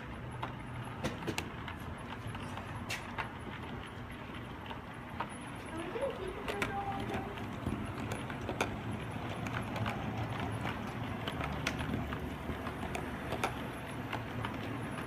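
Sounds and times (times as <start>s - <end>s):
model train wheels rumbling on rails: 0.0s - 15.0s
sharp clicks of wheels: 0.0s - 15.0s.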